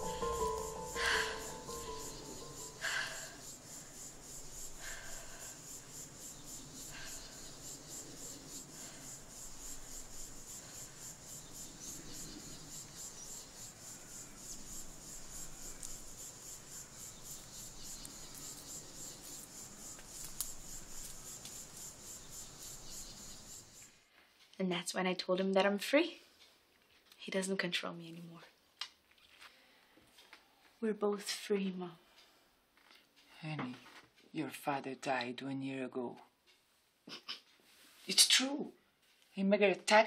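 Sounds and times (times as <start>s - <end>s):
film score music: 0.0s - 3.2s
insect chirring: 0.0s - 24.0s.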